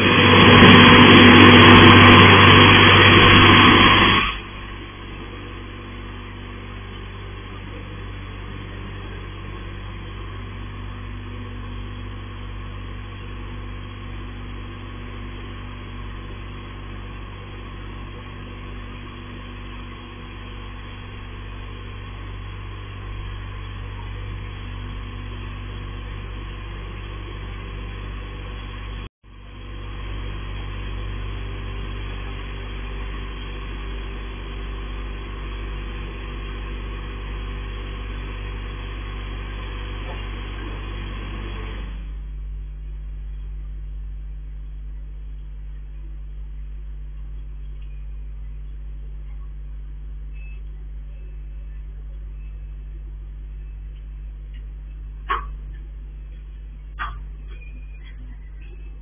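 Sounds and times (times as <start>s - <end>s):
loud rush of noise: 0.0s - 11.8s
car wash machinery hum: 0.0s - 59.0s.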